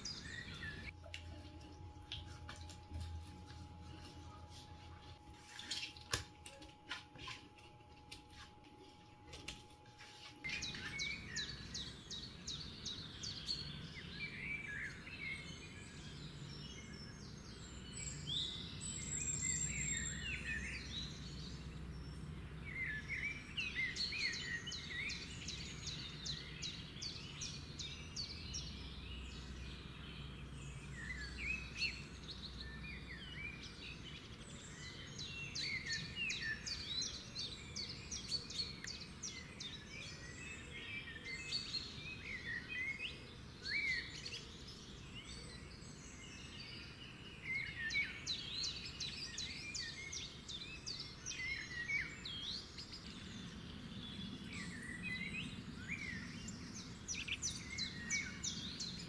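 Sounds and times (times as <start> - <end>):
birds chirping: 0.0 - 59.0
faint steady hum: 0.0 - 59.0.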